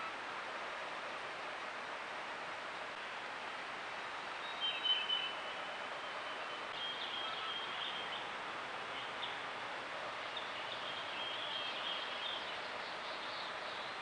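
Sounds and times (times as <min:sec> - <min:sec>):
outdoor background hiss: 0:00.0 - 0:14.0
distant birds singing: 0:03.9 - 0:14.0.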